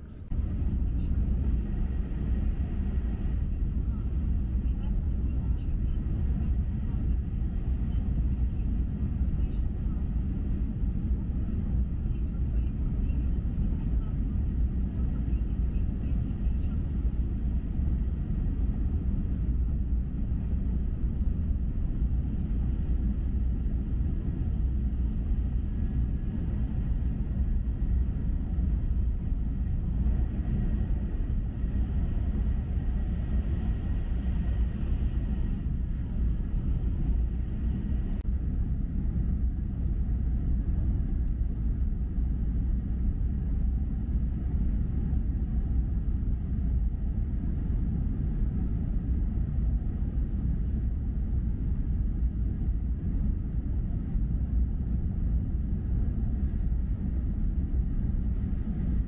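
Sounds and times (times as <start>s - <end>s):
train rumble inside cabin: 0.0s - 59.0s.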